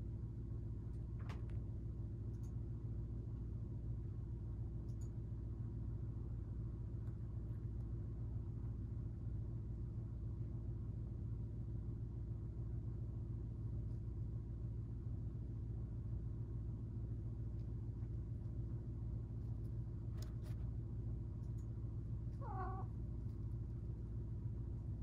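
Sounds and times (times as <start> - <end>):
steady low hum: 0.0 - 25.0
cat meowing: 22.3 - 22.9.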